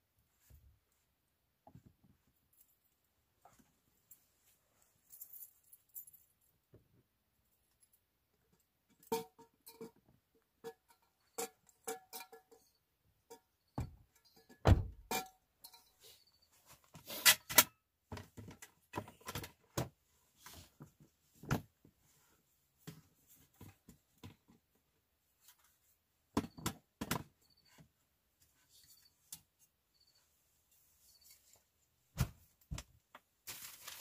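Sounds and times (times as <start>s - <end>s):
camping gear knocking and thumping: 13.8s - 15.4s, 20.7s - 21.9s.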